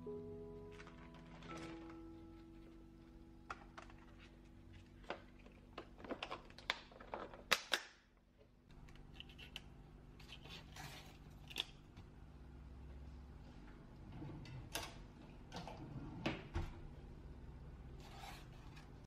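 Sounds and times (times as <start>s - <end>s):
faint steady hum: 8.1s - 19.0s.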